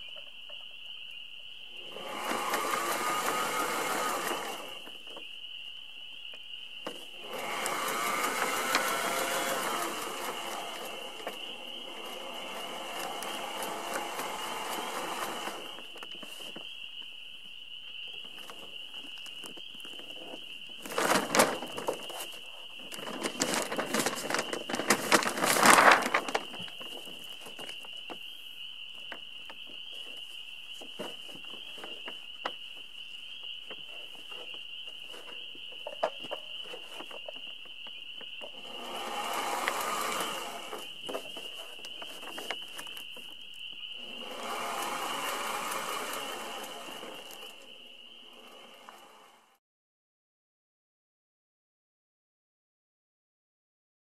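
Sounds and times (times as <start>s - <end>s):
sail fabric crinkling and rustling: 20.1s - 28.3s, 40.8s - 43.7s.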